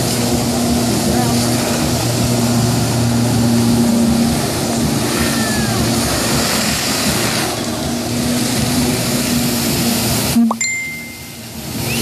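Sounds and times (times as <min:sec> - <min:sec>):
water jets spraying: 0:00.0 - 0:12.0
watercraft engine running hard: 0:00.0 - 0:12.0.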